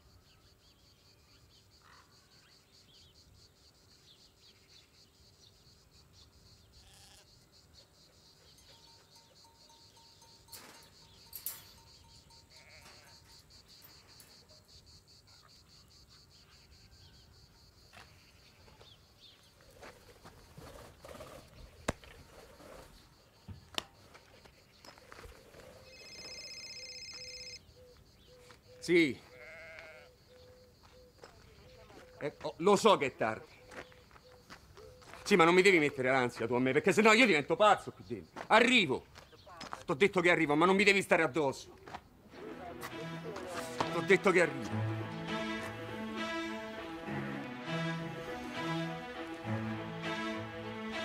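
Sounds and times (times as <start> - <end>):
insects chirping: 0.0 - 47.2
high electronic ringtone: 25.9 - 27.6.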